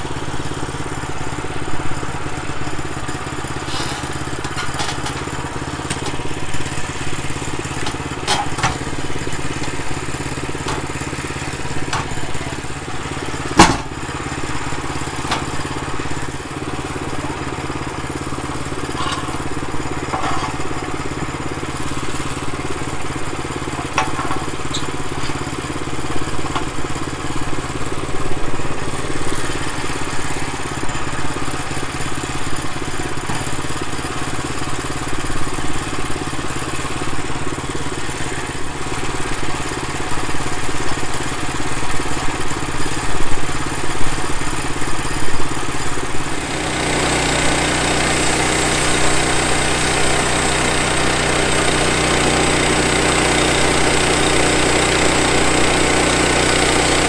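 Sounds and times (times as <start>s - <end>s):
small gasoline engine idling: 0.0s - 57.0s
knocks and clanks of log: 3.8s - 5.3s, 7.8s - 8.8s, 10.6s - 10.9s, 11.9s - 12.4s, 13.5s - 14.0s, 18.9s - 19.4s, 20.1s - 20.6s, 23.7s - 25.4s.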